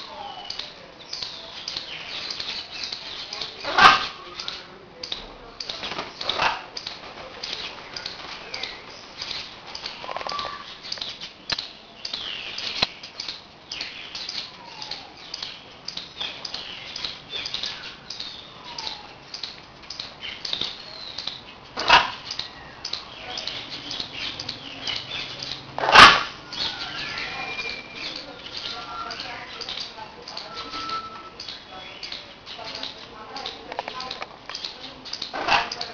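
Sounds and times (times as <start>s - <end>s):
high bird chirps: 20.2s - 35.9s
parrot squawking loudly: 21.8s - 22.2s, 25.8s - 27.2s.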